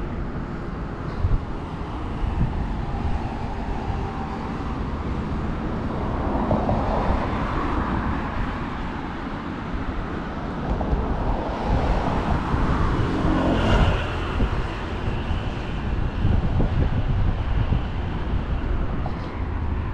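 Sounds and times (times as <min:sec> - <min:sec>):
rumble of passing cars: 0:00.0 - 0:19.9
vehicle passing by loudly: 0:10.8 - 0:19.7.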